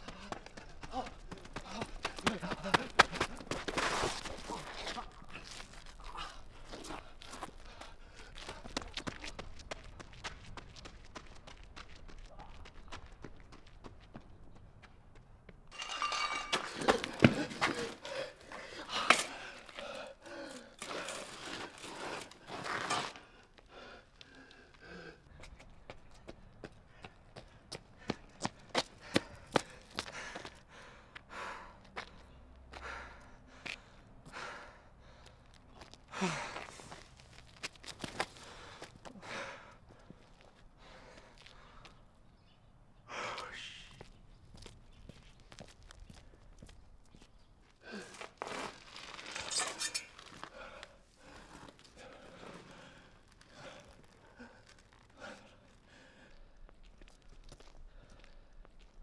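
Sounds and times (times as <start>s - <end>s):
man breathing heavily: 0.0s - 3.5s, 5.2s - 9.0s, 16.3s - 22.5s, 23.1s - 25.8s, 26.7s - 37.3s, 38.2s - 42.2s, 43.0s - 44.1s, 47.8s - 48.4s, 50.4s - 59.0s
man panting: 0.0s - 3.5s, 4.5s - 9.0s, 17.2s - 22.2s, 23.3s - 25.6s, 26.9s - 37.1s, 38.3s - 41.9s
footsteps on hard ground: 15.7s - 20.0s, 36.6s - 39.2s.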